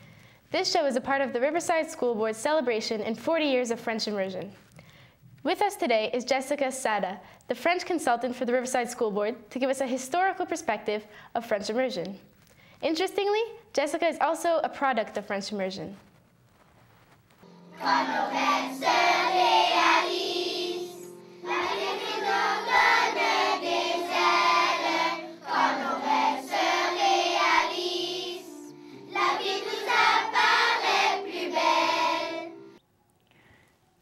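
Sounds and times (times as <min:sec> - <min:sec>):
children's choir singing: 0:17.5 - 0:32.8.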